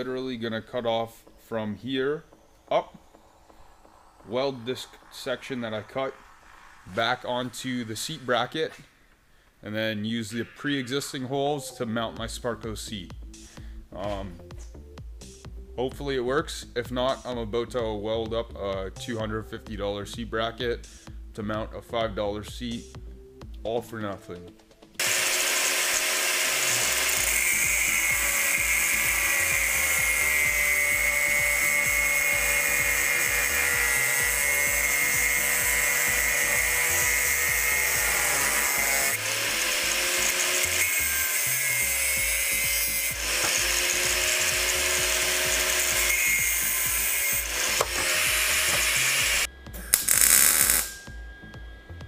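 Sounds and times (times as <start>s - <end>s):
background music with a beat: 1.2s - 9.7s, 11.6s - 25.0s, 26.8s - 40.0s, 40.7s - 52.0s
welding crackle: 25.0s - 35.8s, 48.8s - 51.0s
angle grinder cutting steel: 25.0s - 51.2s.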